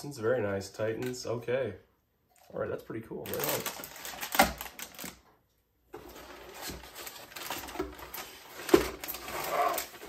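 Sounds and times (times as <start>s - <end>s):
plastic parts clicking and knocking: 3.2s - 5.3s
cardboard rustling and scraping: 5.9s - 10.0s.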